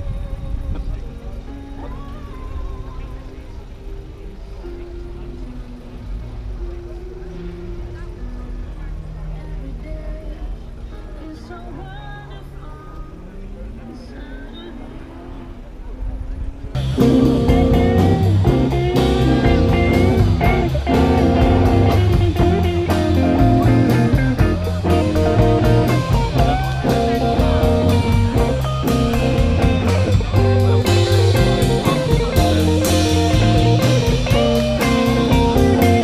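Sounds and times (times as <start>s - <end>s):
blues-rock guitar bending notes: 16.8s - 36.0s
drum kit steady beat: 16.8s - 36.0s.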